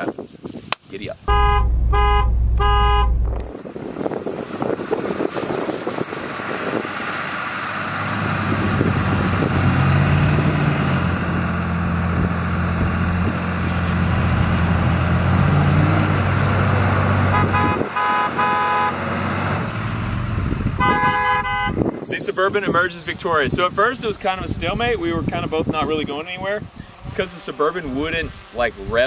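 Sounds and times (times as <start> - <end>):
broken high-pitched tone: 1.3 - 3.5
truck engines revving under load: 1.3 - 22.0
wheels spinning in dirt: 3.5 - 10.9.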